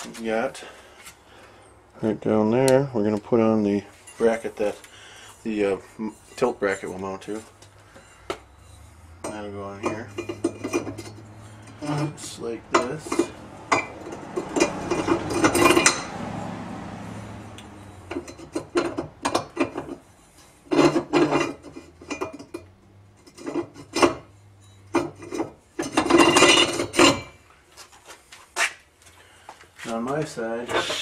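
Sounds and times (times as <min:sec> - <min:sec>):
metal clinking and scraping: 0:03.9 - 0:16.2, 0:17.7 - 0:27.5.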